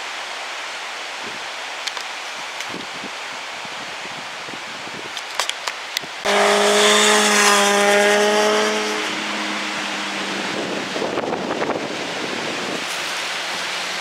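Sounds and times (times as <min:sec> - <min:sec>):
wind-like rushing noise: 0:01.1 - 0:14.0
engine at high revs: 0:06.2 - 0:14.0.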